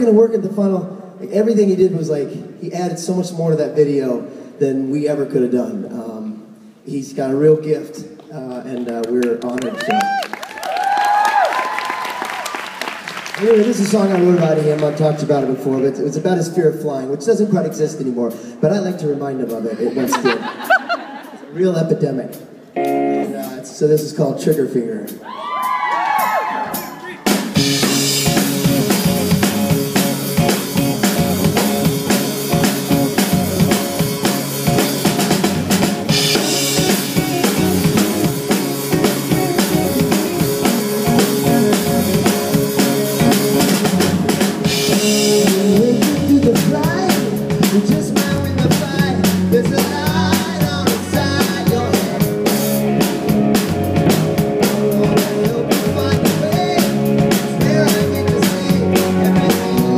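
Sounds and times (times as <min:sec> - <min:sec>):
rock band playing live: 0:20.1 - 0:24.0, 0:25.1 - 0:59.9.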